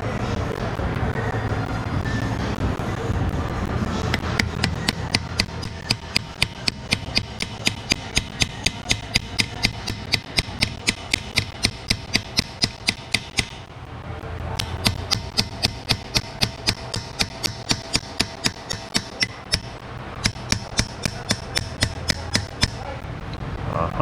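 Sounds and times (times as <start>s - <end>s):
hammer striking chisel on metal: 4.1s - 13.6s, 14.6s - 22.8s.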